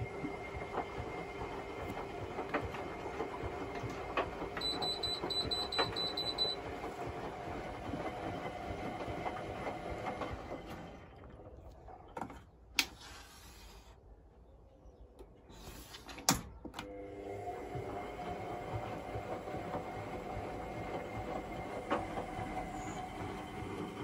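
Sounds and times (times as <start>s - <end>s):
washing machine drum sloshing: 0.0s - 12.2s, 17.3s - 24.0s.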